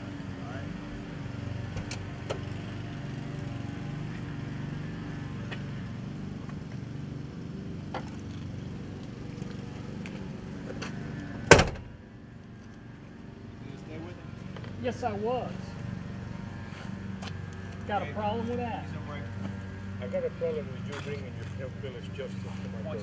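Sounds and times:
car door slamming: 11.4 - 11.9.

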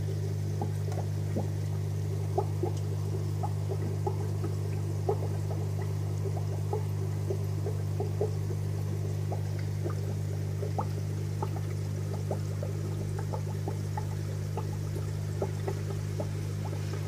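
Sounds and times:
sponge filter bubbling: 0.0 - 17.0
steady low hum: 0.0 - 17.0.

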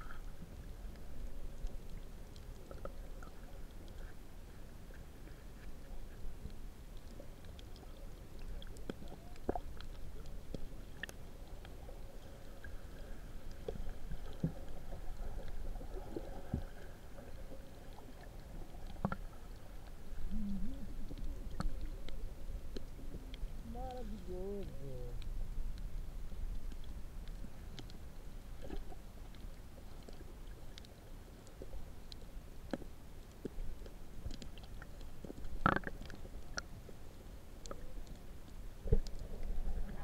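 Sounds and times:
underwater rumble of seawater: 0.0 - 40.0
faint clicks and taps: 17.9 - 20.3, 28.6 - 36.7.

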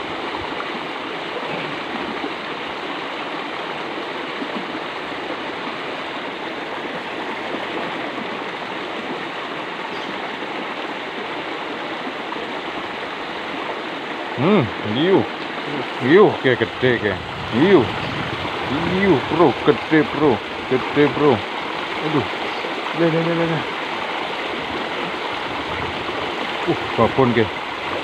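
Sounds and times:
water rushing in ditch: 0.0 - 28.0.

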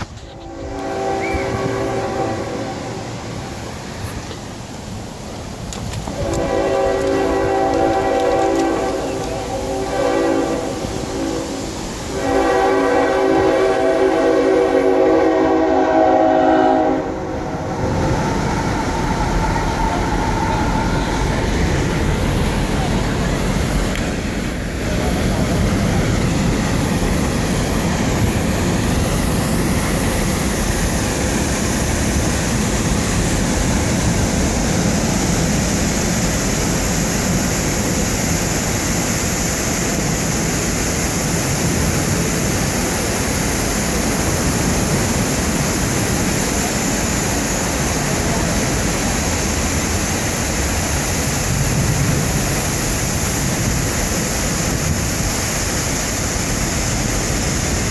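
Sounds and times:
waterfall rushing into pool: 6.3 - 14.2, 28.2 - 57.9.

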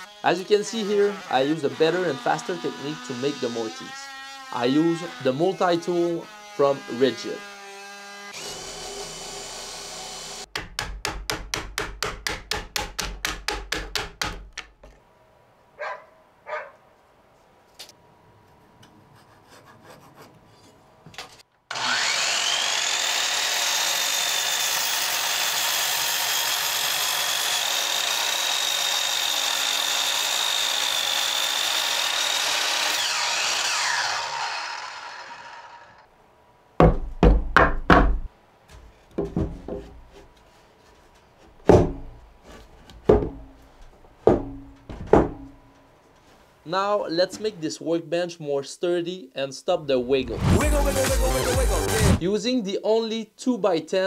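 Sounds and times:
miter saw cutting wood: 0.0 - 10.5, 21.7 - 36.1, 50.3 - 52.2
heavy wooden knocks and thumps: 36.8 - 40.2, 41.6 - 42.2, 42.9 - 45.7.

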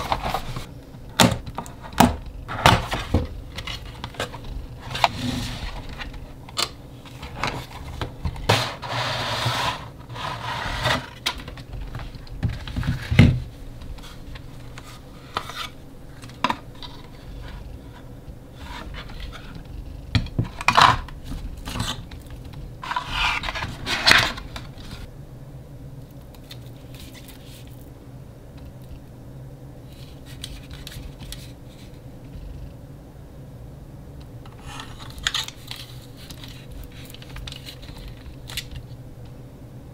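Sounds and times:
cardboard and plastic scraping: 0.0 - 0.7, 1.8 - 19.6, 20.2 - 25.1.

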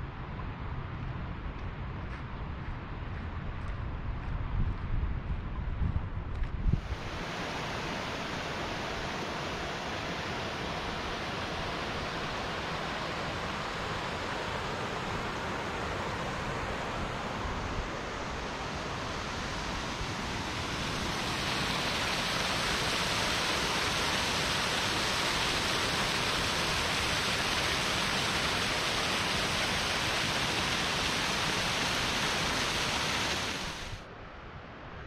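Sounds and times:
flowing water rushing: 6.8 - 34.0.

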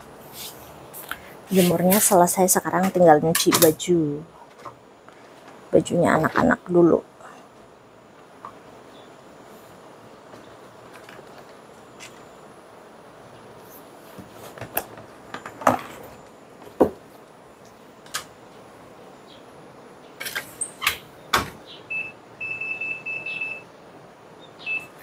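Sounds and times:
washing machine beeping: 21.8 - 23.8, 24.6 - 25.0.

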